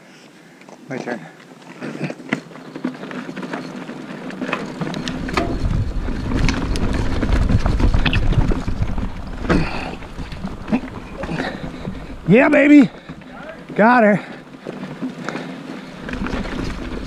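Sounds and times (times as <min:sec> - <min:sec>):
mountain bike rattling over rocks: 0:00.9 - 0:17.0
wind rumble on microphone: 0:04.8 - 0:12.3.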